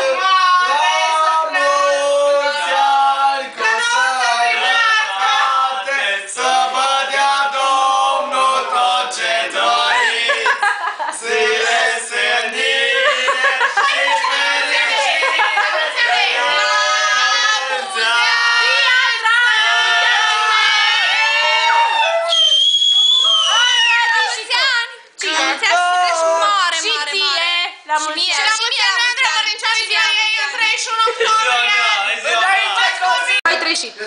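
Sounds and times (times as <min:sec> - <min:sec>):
young people singing together: 0:00.0 - 0:22.2.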